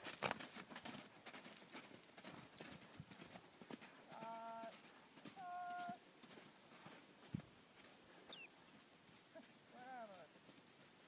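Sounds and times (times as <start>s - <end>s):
faint hoofbeats on dirt: 0.0s - 11.0s
short steady-pitched calls: 8.3s - 8.6s.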